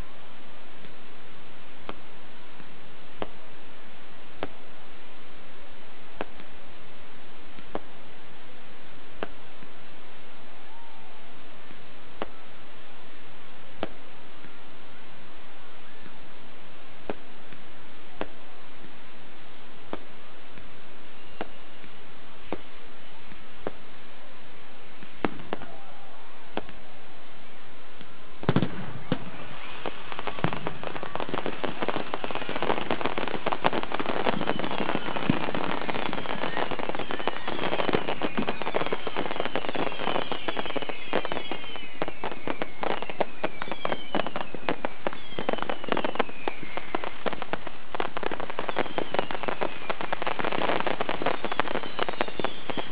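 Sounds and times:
fireworks bangs and crackle: 0.0 - 52.9
firework whistles falling in pitch: 21.0 - 22.7, 28.4 - 52.9.

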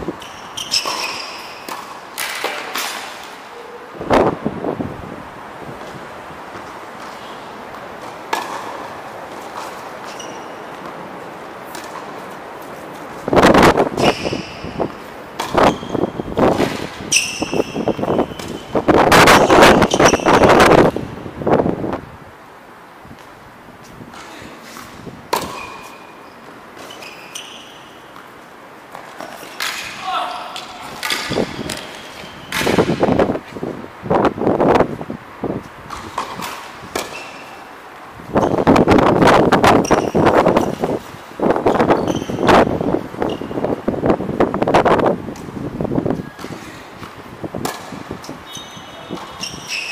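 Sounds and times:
shoes squeaking on court: 0.0 - 3.9, 5.8 - 21.0, 23.2 - 33.8, 35.6 - 43.9, 45.3 - 49.9
tennis ball struck by rackets: 0.7 - 3.4, 7.7 - 10.1, 11.6 - 12.8, 15.3 - 15.8, 24.8 - 26.0, 28.1 - 33.2, 35.9 - 37.5, 46.4 - 48.4
ball bouncing in sharp pops: 1.6 - 3.2, 25.3 - 25.7, 46.4 - 48.0
wind buffeting microphone: 3.9 - 6.6, 13.2 - 22.4, 30.8 - 37.0, 38.1 - 49.7.

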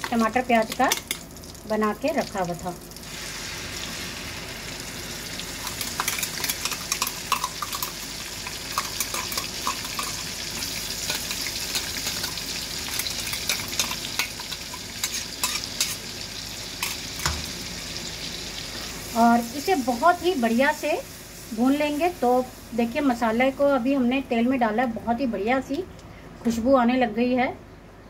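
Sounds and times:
paste sizzling in hot oil: 3.0 - 23.3.

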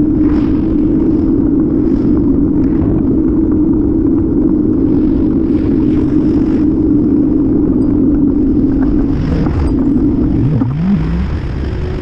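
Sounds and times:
road and wind noise while riding: 0.0 - 12.0.

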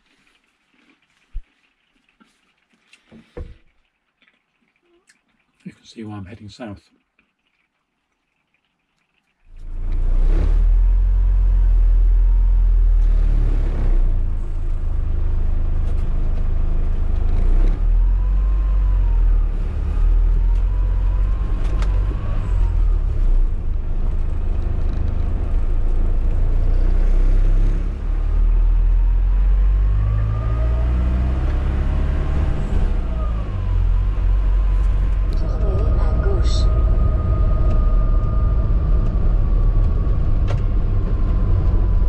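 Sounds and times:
engine and road rumble: 9.5 - 42.0
windscreen wipers sweeping: 30.6 - 42.0.

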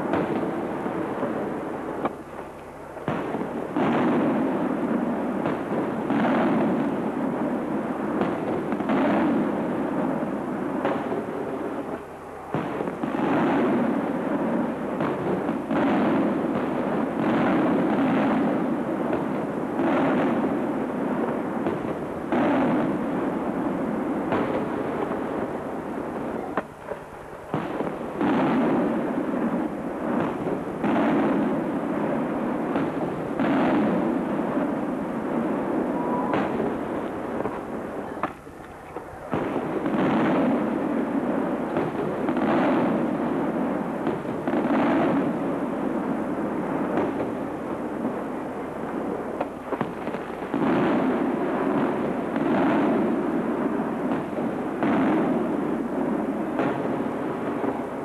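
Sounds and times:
continuous rumble: 0.0 - 58.0.

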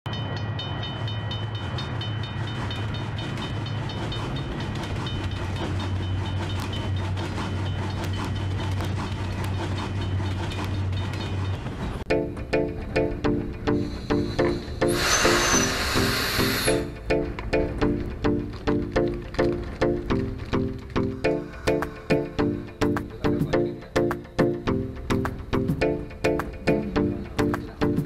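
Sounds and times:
level-crossing bell ringing: 0.1 - 8.6
passing train rumble and clatter: 0.1 - 28.0
plucked-string music: 12.1 - 28.0.

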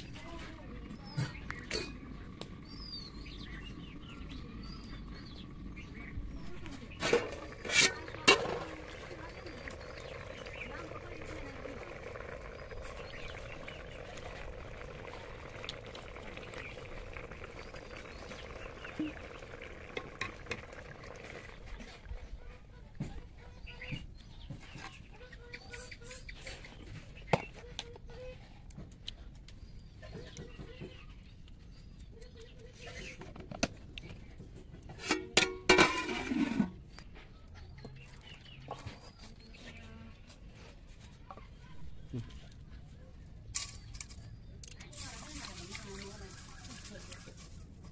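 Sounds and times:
curry bubbling in a pot: 0.0 - 25.0.

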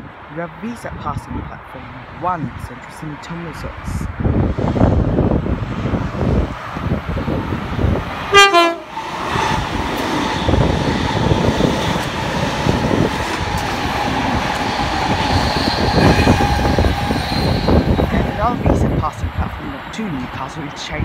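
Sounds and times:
train rumbling past: 4.1 - 20.8
train horn blast: 8.3 - 9.0.

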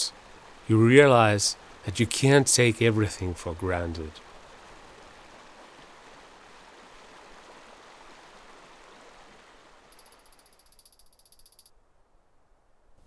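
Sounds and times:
stream running over rocks: 0.0 - 11.5
fast high-pitched ticking rattle: 9.9 - 11.7.

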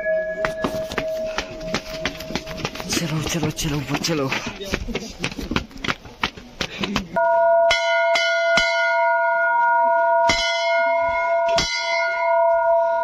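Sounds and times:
brass bell ringing: 0.0 - 3.0, 7.2 - 13.0.

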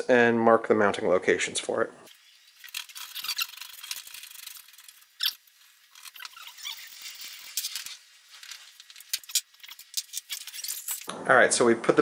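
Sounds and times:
metal bed frame squeaking and scraping: 2.2 - 11.1.

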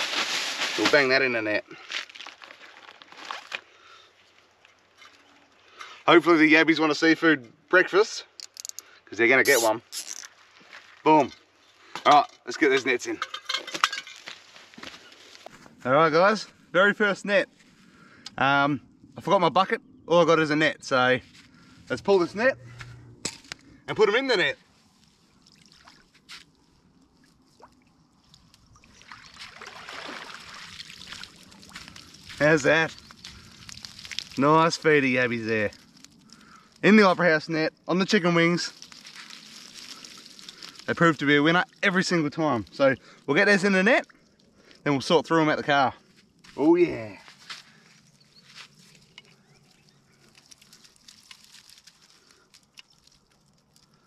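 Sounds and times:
net splashing out of water: 28.4 - 32.2.

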